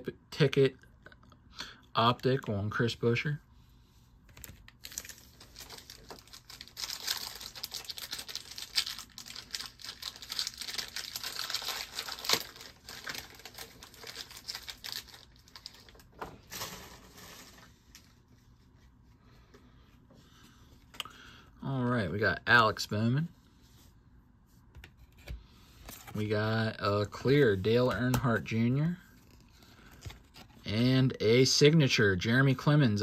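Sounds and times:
card pack wrapper crinkling and tearing: 4.3 - 18.1.

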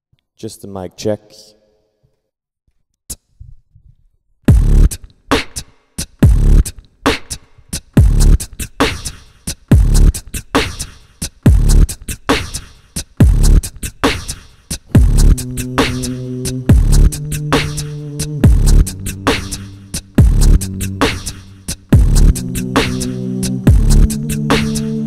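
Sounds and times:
vocal beatbox into microphone: 4.5 - 25.0
steady low bass tone: 15.0 - 25.0.

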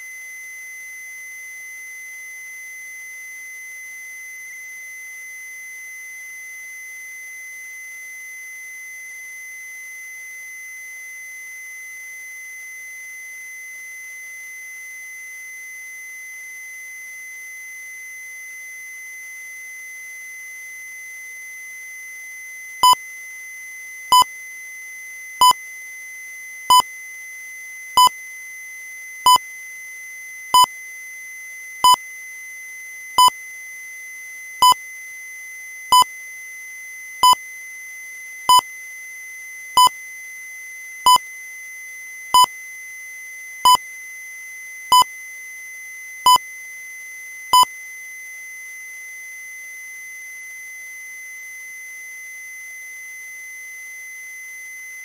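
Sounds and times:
constant high-pitched tone: 0.0 - 55.0.

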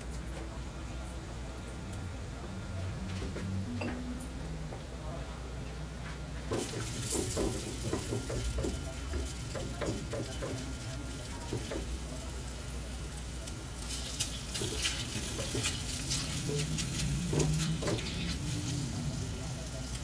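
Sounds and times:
food frying in a pan: 6.5 - 20.0.

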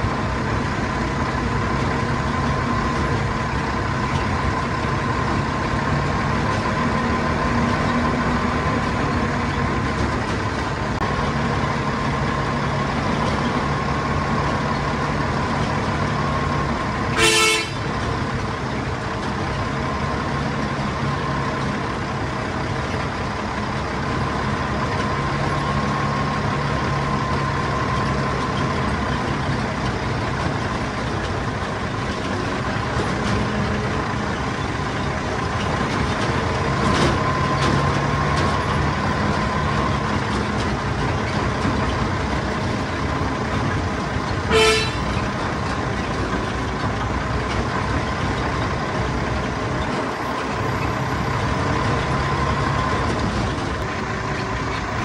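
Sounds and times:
diesel locomotive engine running: 0.0 - 55.0
short horn toot: 17.2 - 17.8, 44.5 - 45.1.

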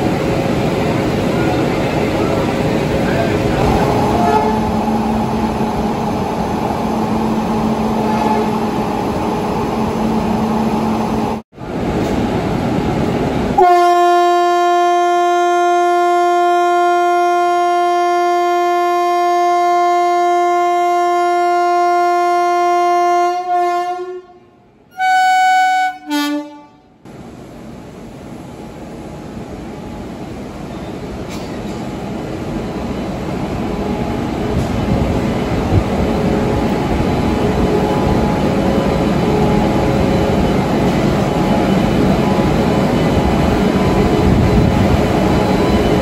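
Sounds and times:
electric locomotive horn: 4.0 - 4.8, 8.0 - 8.7, 13.6 - 26.9.

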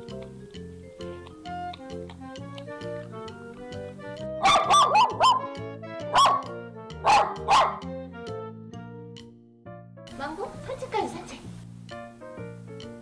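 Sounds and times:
background music: 0.0 - 13.0
small dog barking: 4.4 - 7.9.

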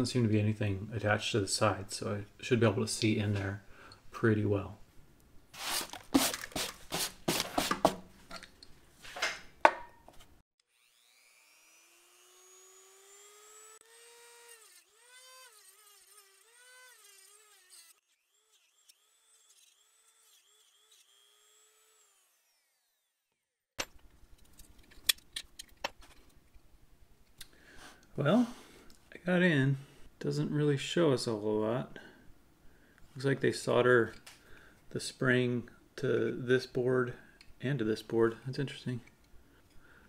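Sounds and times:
rotary tool cutting plastic: 11.9 - 23.1.

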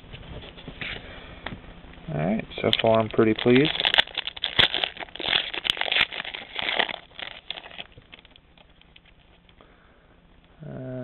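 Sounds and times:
foil wrapper crinkling: 2.6 - 9.2.

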